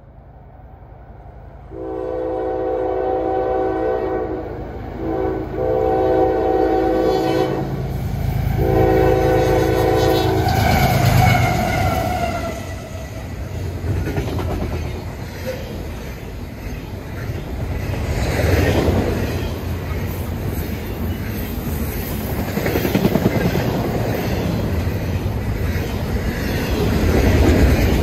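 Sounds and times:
train cars rolling past: 0.0s - 28.0s
locomotive air horn blasts: 1.7s - 7.9s, 8.5s - 12.7s.

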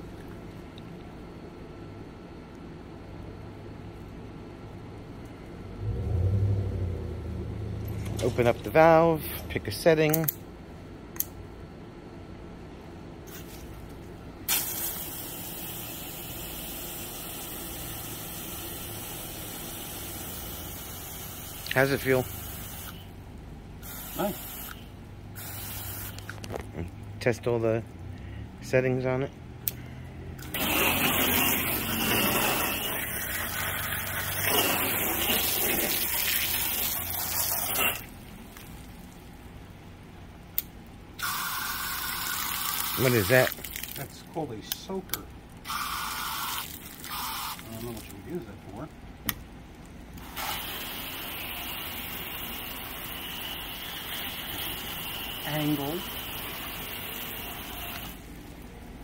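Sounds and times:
hose water spraying: 14.5s - 23.0s, 30.4s - 38.9s, 50.2s - 58.2s
hose spray hissing: 23.8s - 24.8s, 25.4s - 26.2s, 50.2s - 58.2s.

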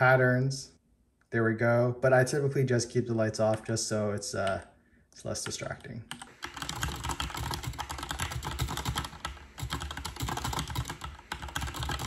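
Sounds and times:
fast typing on mechanical keyboard: 5.5s - 12.0s.

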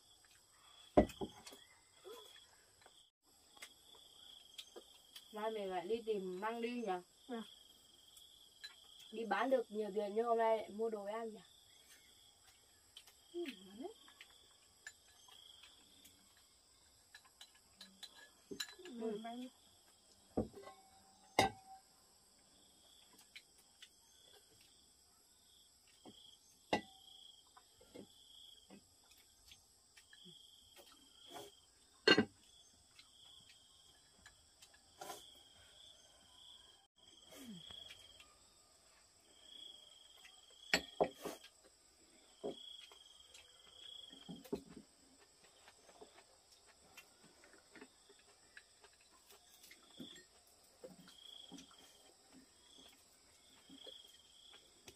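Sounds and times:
tableware clicking and knocking: 17.1s - 19.0s, 20.4s - 21.8s, 32.0s - 32.4s, 40.7s - 41.2s.

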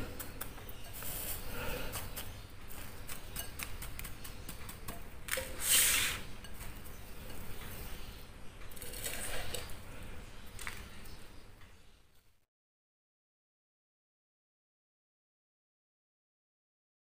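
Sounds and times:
breadcrumbs rustling and crackling: 0.0s - 7.6s.

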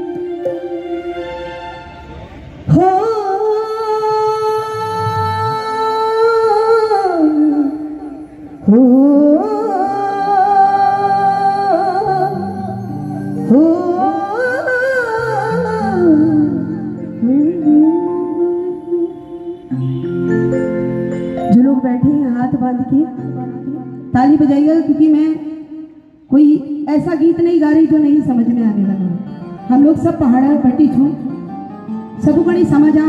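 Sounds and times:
woman singing wordless notes: 0.0s - 1.8s, 2.7s - 20.1s
soft instrumental accompaniment: 0.0s - 33.0s.

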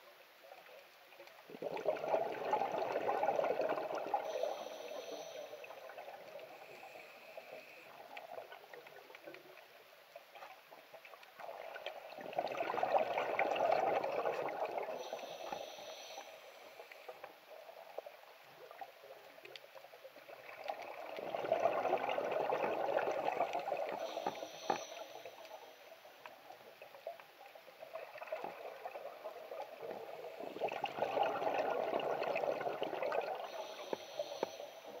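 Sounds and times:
diver exhaling bubbles: 1.5s - 4.4s, 29.7s - 34.5s
regulator inhale hiss: 3.8s - 8.0s, 14.9s - 17.4s, 23.3s - 26.3s, 33.4s - 35.0s.

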